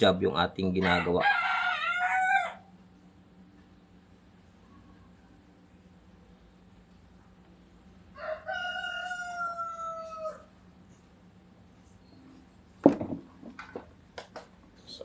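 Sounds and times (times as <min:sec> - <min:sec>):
rooster crowing: 0:00.8 - 0:02.8, 0:08.1 - 0:10.6.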